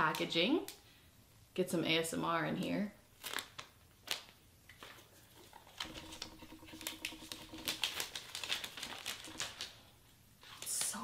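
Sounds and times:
plastic shrink-wrap crinkling: 3.2s - 11.0s.

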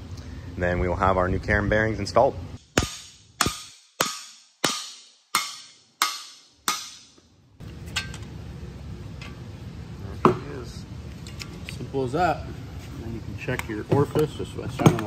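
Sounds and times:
hammer striking steel bar: 2.6s - 7.2s.

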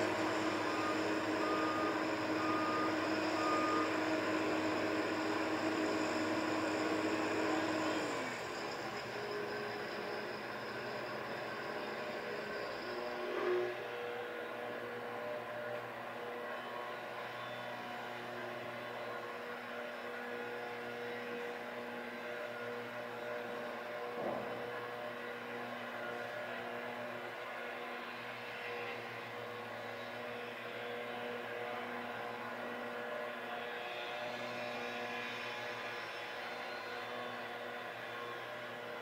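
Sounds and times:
excavator diesel engine running: 0.0s - 14.4s.

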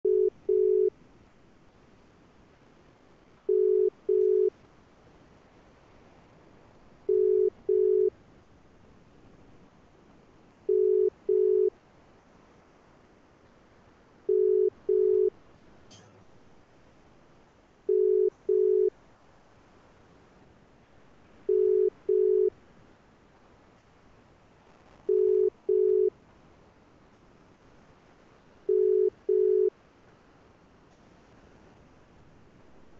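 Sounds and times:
telephone ringback tone: 0.0s - 0.9s, 3.5s - 4.5s, 7.1s - 8.1s, 10.7s - 11.7s, 14.3s - 15.3s, 17.9s - 18.9s, 21.5s - 22.5s, 25.1s - 26.1s, 28.7s - 29.7s.

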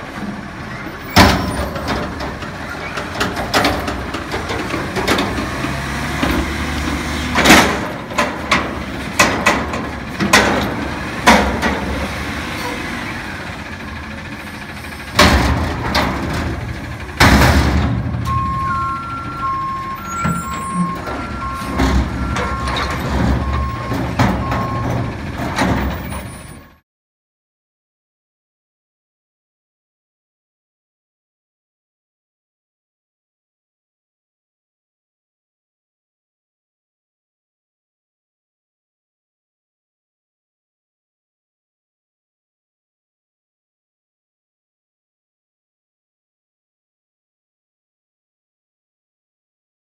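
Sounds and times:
garbage truck engine: 0.0s - 26.8s
dumpster banging: 0.1s - 26.7s
two-tone backup alarm beeping: 18.2s - 25.1s.

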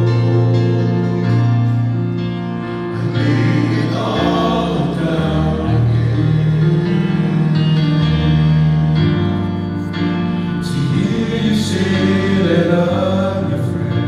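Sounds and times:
men singing in harmony: 0.0s - 2.0s, 2.8s - 8.3s, 10.6s - 14.0s.

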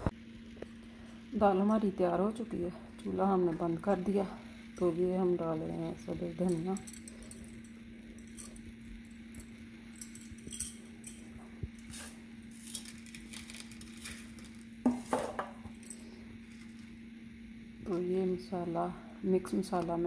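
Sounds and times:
steady low hum: 0.0s - 20.0s
kitchen things clinking: 6.4s - 12.0s, 12.6s - 16.1s.

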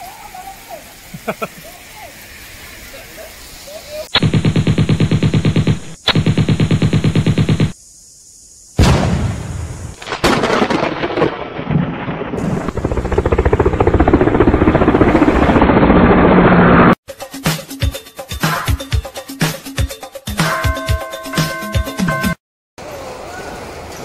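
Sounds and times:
machine-gun fire: 4.2s - 7.8s
blast: 8.8s - 12.9s.

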